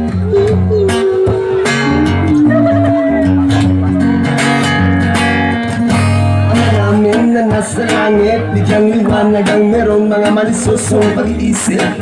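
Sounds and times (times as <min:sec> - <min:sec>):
person singing: 0:00.0 - 0:04.7
acoustic guitar strumming: 0:00.0 - 0:12.0.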